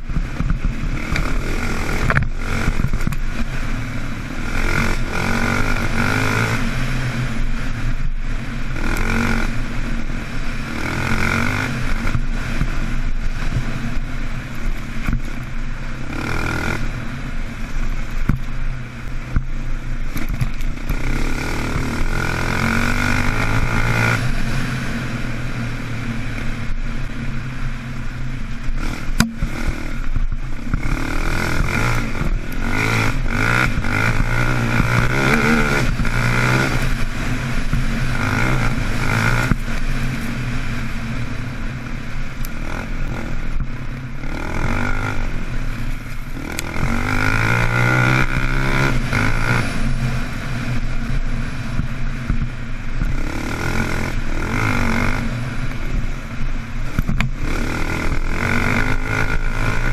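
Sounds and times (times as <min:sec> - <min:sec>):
quad engine revving: 0:00.0 - 0:07.6, 0:08.7 - 0:09.9, 0:10.6 - 0:12.8, 0:16.0 - 0:17.0, 0:20.0 - 0:25.1, 0:28.7 - 0:40.4, 0:42.3 - 0:45.5, 0:46.1 - 0:50.8, 0:53.0 - 0:55.8, 0:56.8 - 0:59.9.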